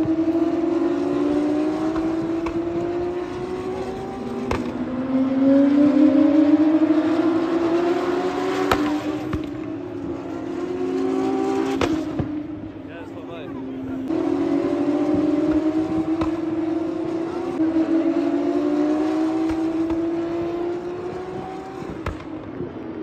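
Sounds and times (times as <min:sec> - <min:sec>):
racing cars passing: 0:00.0 - 0:23.0.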